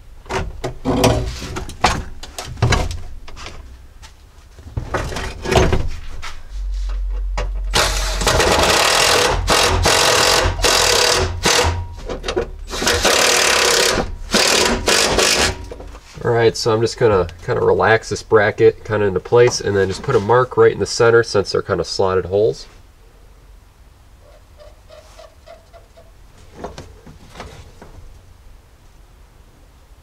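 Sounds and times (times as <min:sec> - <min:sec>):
seat frame scraping on metal floor: 0:00.8 - 0:02.1.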